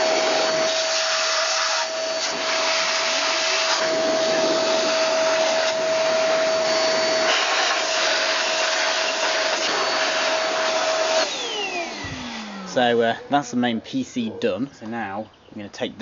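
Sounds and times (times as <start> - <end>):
air duster motor whine: 0.0 - 13.4.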